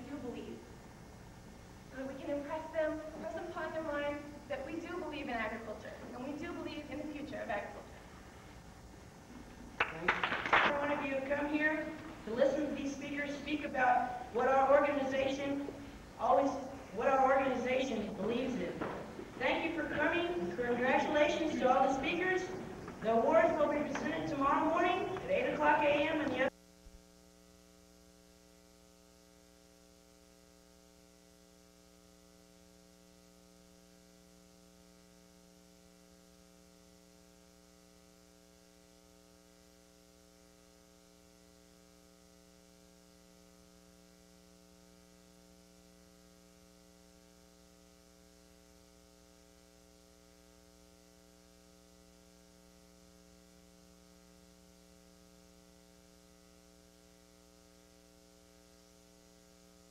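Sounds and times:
faint mains hum: 0.0s - 59.9s.

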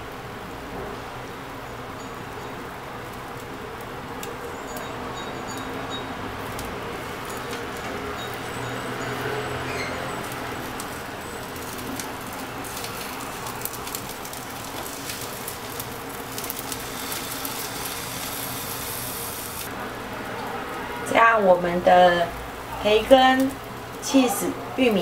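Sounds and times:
pancake sizzling in oil: 2.0s - 19.8s.

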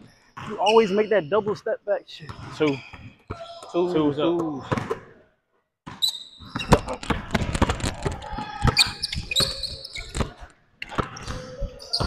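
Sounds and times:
sneakers squeaking on floor: 0.3s - 4.0s, 5.8s - 7.4s, 8.2s - 12.0s.

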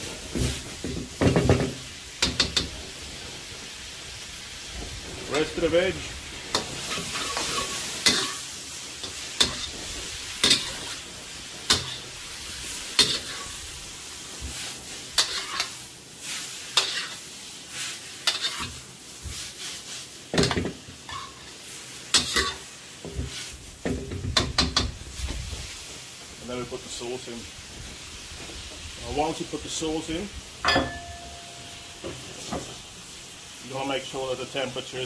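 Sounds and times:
food sizzling in a wok: 0.0s - 35.0s
metal spatula scraping a wok: 6.3s - 13.6s, 14.4s - 23.6s.

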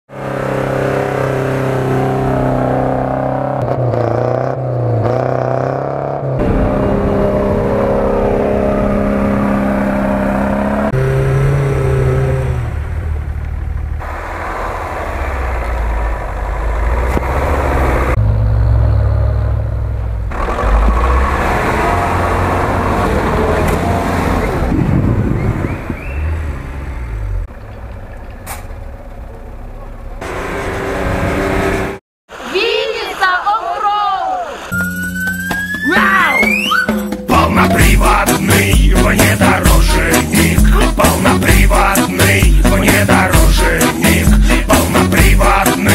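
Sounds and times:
off-road vehicle engines revving: 0.1s - 32.8s, 36.3s - 45.9s
truck engine running rough: 6.3s - 32.0s, 37.3s - 45.9s.

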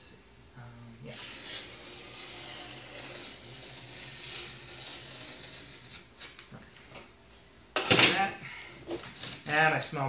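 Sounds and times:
blade cutting cardboard: 1.1s - 6.4s.

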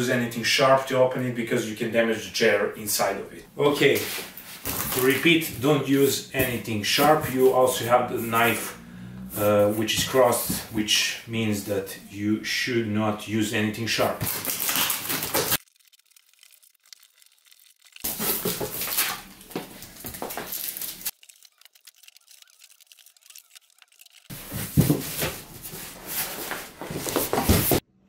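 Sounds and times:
packing tape ripping off cardboard: 4.5s - 5.3s, 14.0s - 25.5s
cardboard being pulled open: 24.3s - 27.8s.

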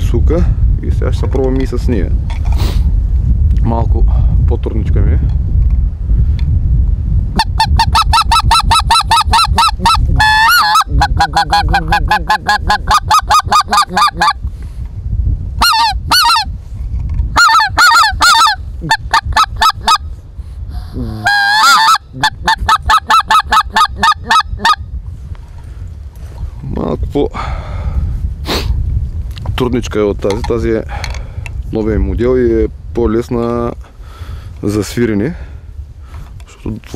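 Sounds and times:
goose call honking: 7.4s - 14.4s, 15.6s - 16.5s, 17.4s - 20.0s, 21.2s - 24.8s.

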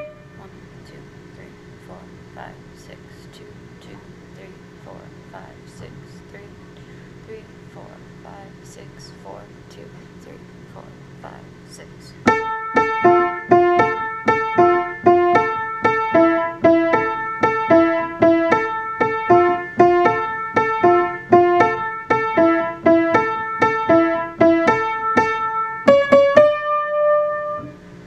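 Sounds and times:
bouncy piano tune: 0.0s - 0.3s, 12.2s - 27.9s.

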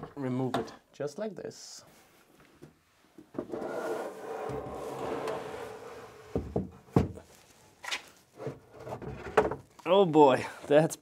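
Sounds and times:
computer tower scraping on shelf: 3.5s - 6.4s.

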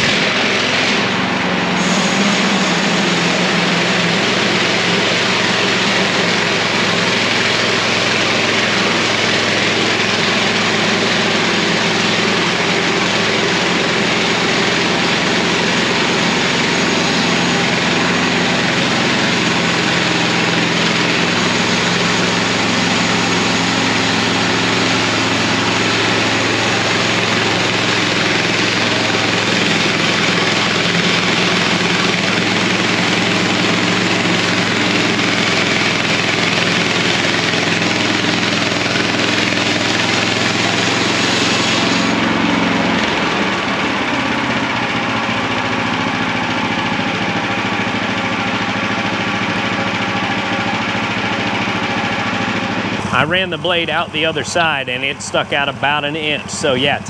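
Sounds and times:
sawmill gas engine running: 0.0s - 57.0s.

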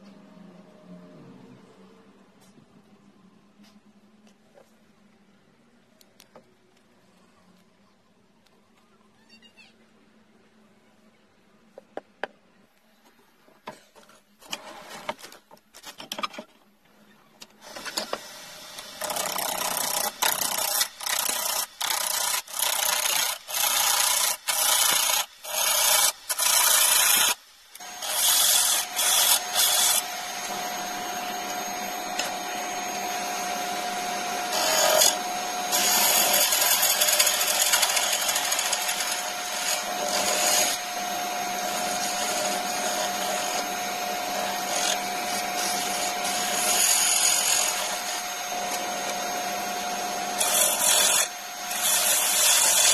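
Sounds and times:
wood lathe turning: 17.6s - 52.9s
chisel scraping wood: 27.8s - 40.8s, 50.0s - 52.9s.

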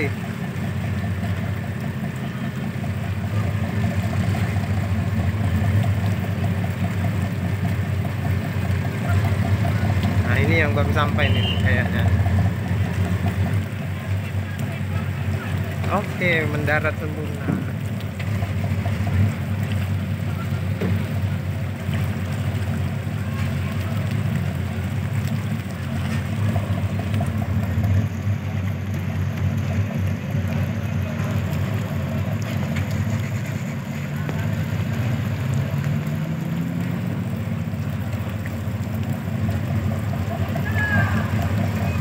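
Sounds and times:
ship engines droning: 0.0s - 42.0s.

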